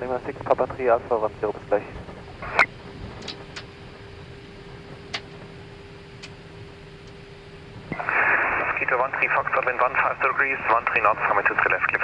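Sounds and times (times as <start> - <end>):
cockpit hum: 0.0 - 12.0.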